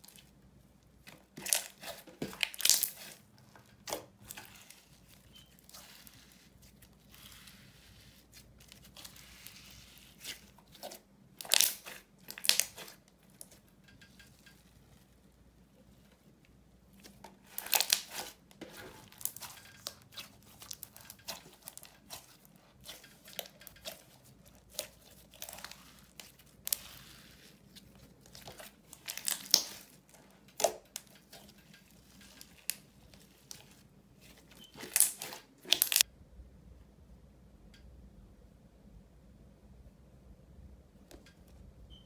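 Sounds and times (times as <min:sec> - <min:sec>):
slime squishing with sticky pops: 0:01.0 - 0:15.1, 0:16.9 - 0:36.0.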